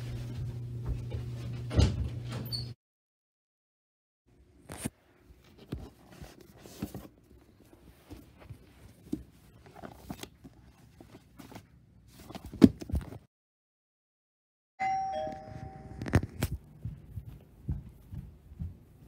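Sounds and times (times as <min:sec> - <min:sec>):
book pages rustling: 0:04.6 - 0:13.3, 0:16.0 - 0:17.4.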